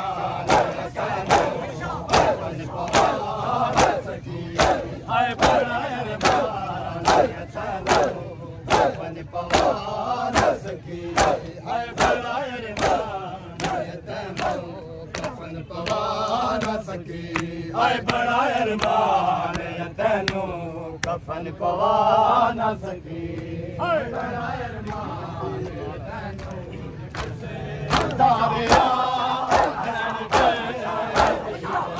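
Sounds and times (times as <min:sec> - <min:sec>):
crowd of men chanting: 0:00.0 - 0:31.9.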